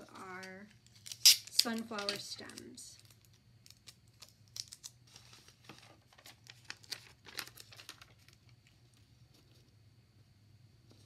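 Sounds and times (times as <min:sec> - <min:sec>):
paper rustling and crinkling: 0:01.9 - 0:09.7.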